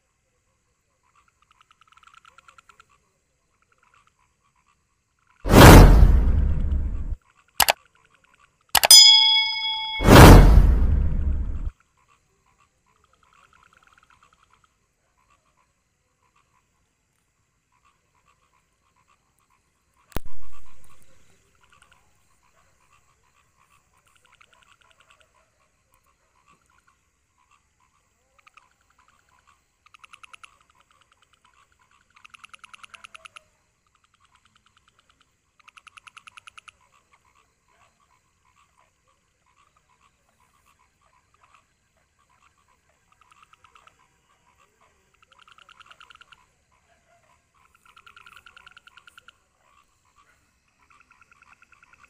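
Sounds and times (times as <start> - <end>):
background frog chorus: 0.0 - 5.4, 7.2 - 8.7, 11.8 - 20.1, 21.1 - 52.0
sharp knock: 5.5 - 7.2, 8.8 - 11.7, 20.2 - 21.1
frogs calling in pulsed trills: 21.6 - 52.0.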